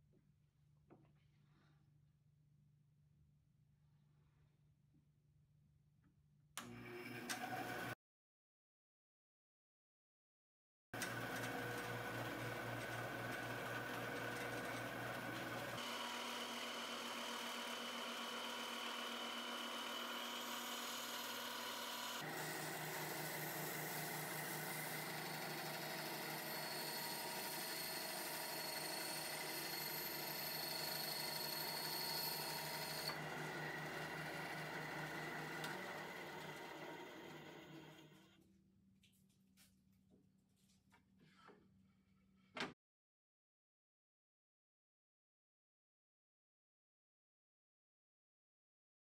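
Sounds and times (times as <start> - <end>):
band saw cutting board: 11.0 - 38.3.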